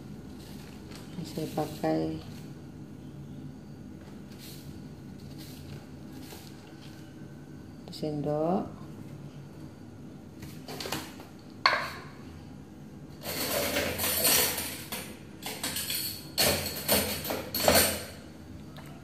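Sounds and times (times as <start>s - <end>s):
utensils clattering against pot: 13.2s - 18.2s.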